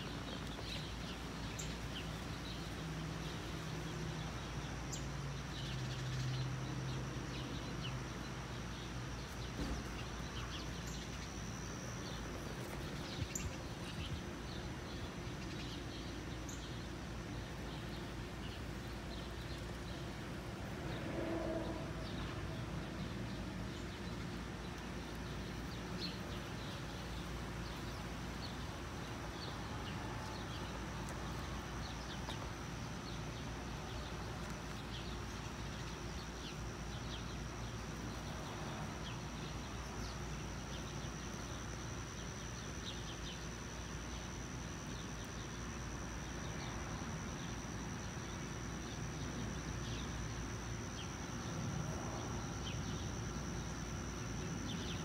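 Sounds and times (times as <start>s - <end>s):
high-pitched insect trill: 34.8s - 55.0s.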